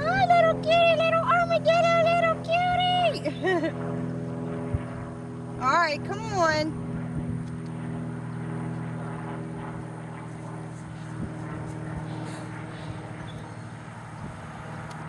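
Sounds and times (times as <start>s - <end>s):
motor droning: 0.0s - 15.0s.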